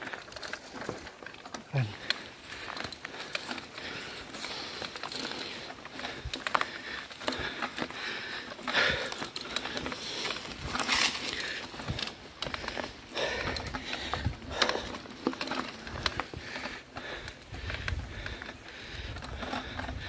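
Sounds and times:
bike clicks and rattles: 0.0 - 20.0
bike tyres crunching on gravel: 0.0 - 20.0.

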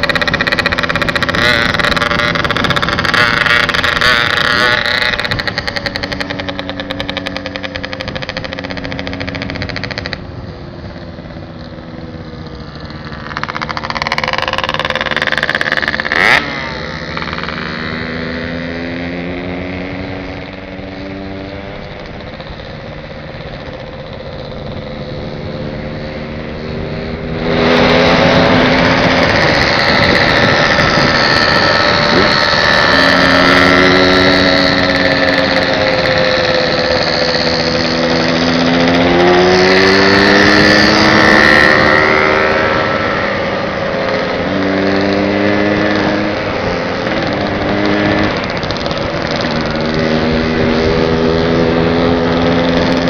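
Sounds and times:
motorcycle engine running: 0.0 - 53.0
loud rushing noise: 25.2 - 53.0.

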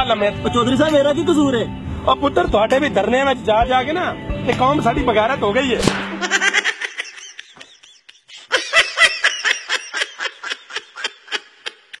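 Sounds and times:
person laughing: 6.2 - 12.0.

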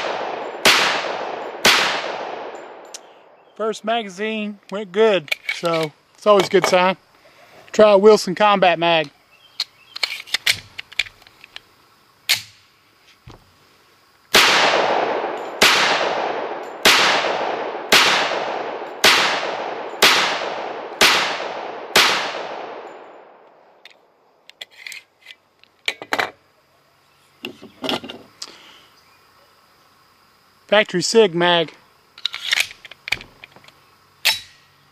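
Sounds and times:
pistol shots echoing: 0.0 - 3.4, 14.3 - 23.4.

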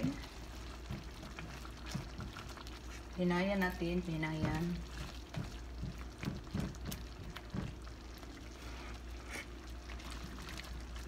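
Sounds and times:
spoon stirring thick sauce: 0.0 - 3.2, 4.3 - 8.4
sauce simmering with bubble pops: 0.0 - 11.0.

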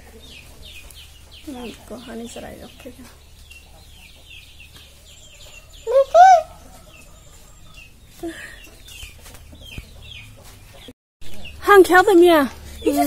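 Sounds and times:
chicks peeping: 0.0 - 11.6.

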